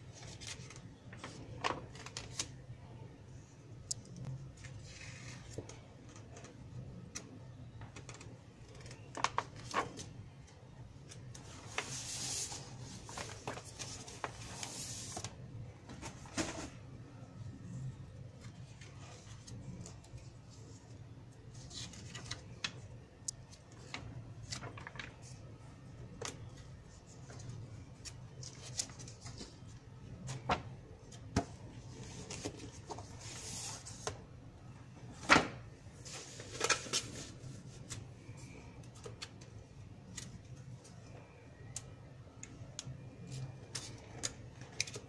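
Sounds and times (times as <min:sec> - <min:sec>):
faint low hum: 0:00.0 - 0:45.0
magazine pages rustling: 0:08.7 - 0:10.2, 0:11.3 - 0:15.4, 0:23.8 - 0:25.5, 0:36.0 - 0:38.1.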